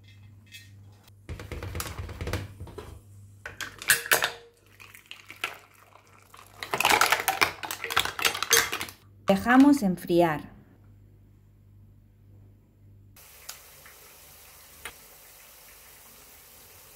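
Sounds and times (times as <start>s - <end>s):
liquid splashing into bowl: 4.6s - 8.8s.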